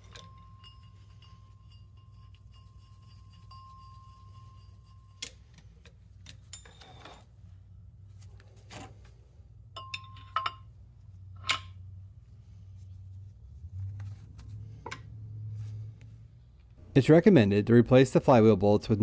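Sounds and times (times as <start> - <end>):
metal tools clinking on steel: 0.0 - 7.2, 9.8 - 10.7
low steady hum: 0.0 - 19.0.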